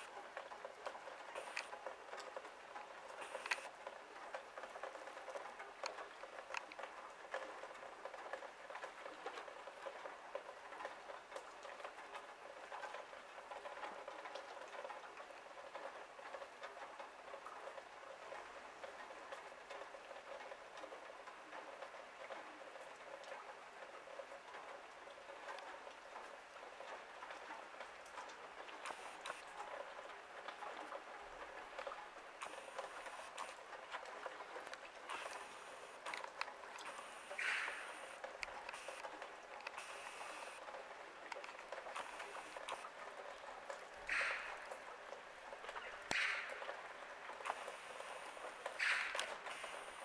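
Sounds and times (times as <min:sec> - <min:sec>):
fine patter of tiny ticks: 0:00.0 - 0:50.0
click: 0:03.2 - 0:03.7.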